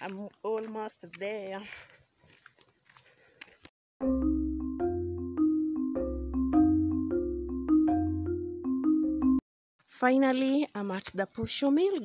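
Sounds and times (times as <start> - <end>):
deep bass line: 4.0 - 9.4
struck-note melody: 4.0 - 9.4.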